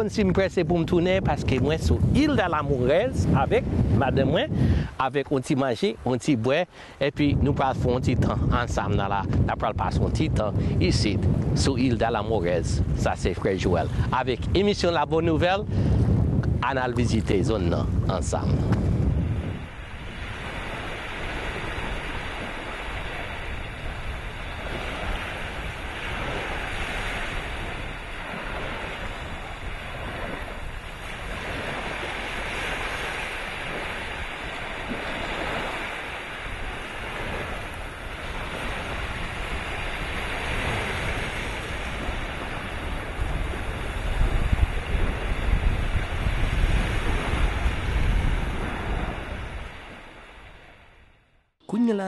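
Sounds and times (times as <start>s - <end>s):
wind buffeting microphone: 0.0s - 51.3s
small waves washing in: 18.4s - 51.4s.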